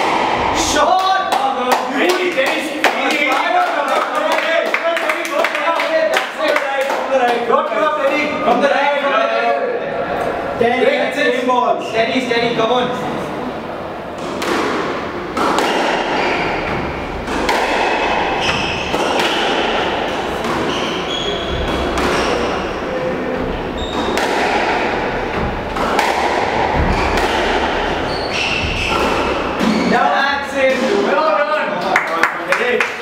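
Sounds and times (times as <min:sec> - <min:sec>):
ball thudding against walls: 0:14.2 - 0:22.6, 0:23.4 - 0:29.8
squash ball cracking off rackets: 0:14.2 - 0:22.9, 0:23.6 - 0:29.8
shoes squeaking on wooden floor: 0:16.1 - 0:17.3, 0:18.0 - 0:25.8, 0:26.6 - 0:30.0.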